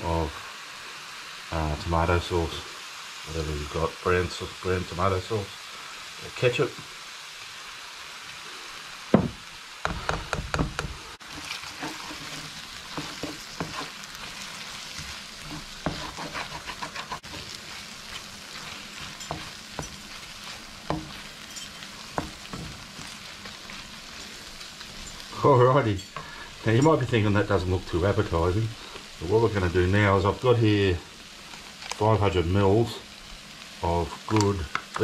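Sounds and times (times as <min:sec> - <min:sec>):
food sizzling in a frying pan: 0:00.0 - 0:35.0
wooden spoon scraping a pan: 0:11.2 - 0:27.1.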